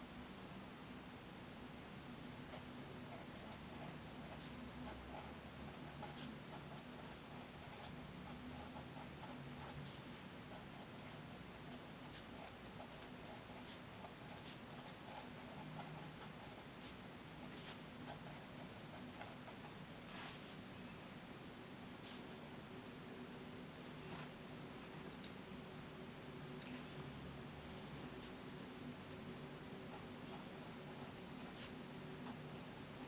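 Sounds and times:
low steady hum: 0.0 - 33.0
pen scratching on paper: 2.5 - 20.6, 29.9 - 32.9.

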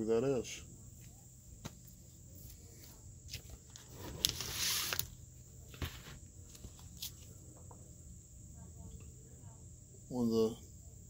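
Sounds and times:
plastic sleeves crinkling: 3.3 - 7.3.

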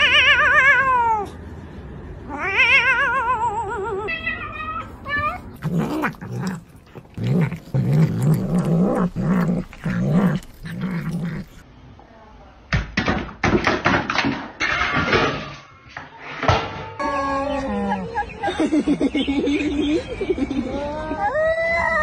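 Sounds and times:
cat yowling and meowing: 0.0 - 1.4, 2.3 - 11.6, 20.8 - 22.0
cat grumbling: 4.8 - 11.6
cat crunching pepper: 5.3 - 11.6.

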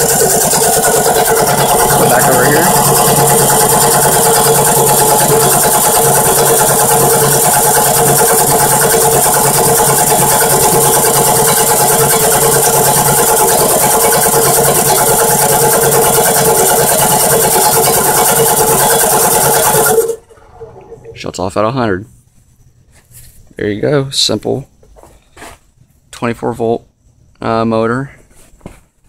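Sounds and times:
air compressor pump running: 0.0 - 21.2.

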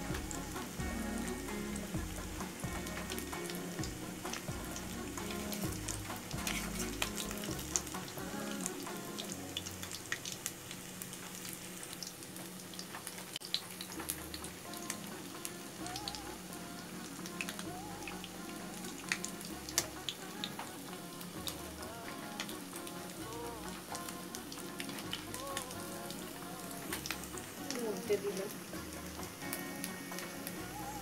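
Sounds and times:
strainer moving through oil: 0.0 - 8.8
food sizzling in hot oil: 0.0 - 31.0.

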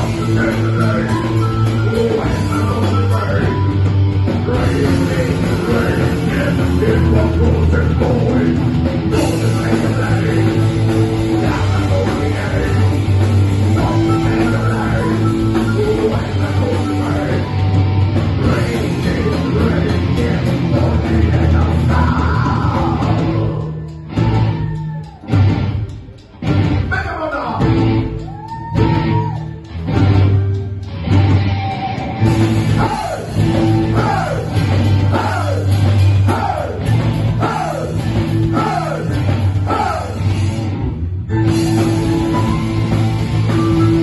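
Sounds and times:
person singing into a microphone: 0.0 - 3.7, 4.4 - 17.6, 18.4 - 24.0
bass guitar: 0.0 - 44.0
distorted electric guitar: 0.0 - 44.0
drums: 0.0 - 44.0
live rock band playing: 0.0 - 44.0.

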